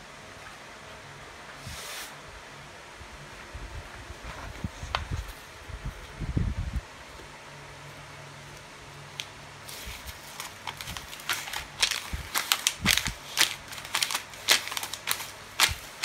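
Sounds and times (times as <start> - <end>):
paper crinkling under toes: 9.6 - 16.0.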